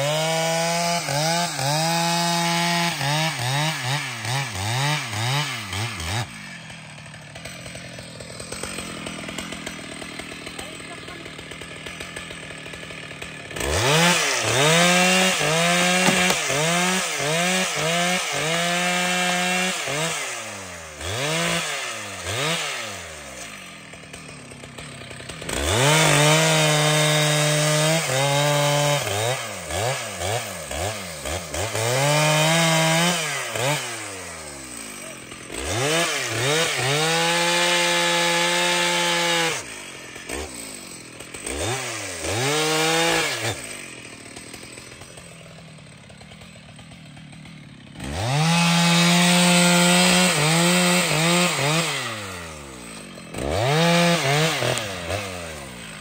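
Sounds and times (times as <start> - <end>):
chainsaw revving: 0.0 - 56.0.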